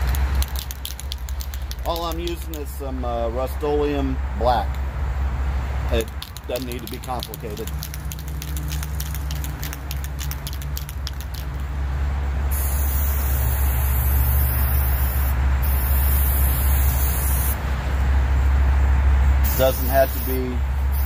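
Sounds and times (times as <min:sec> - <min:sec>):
mixing ball rattling in can: 0:00.0 - 0:02.6, 0:06.0 - 0:11.6
spray paint can hissing: 0:00.0 - 0:02.8, 0:06.0 - 0:11.7, 0:12.5 - 0:17.6, 0:19.4 - 0:21.0.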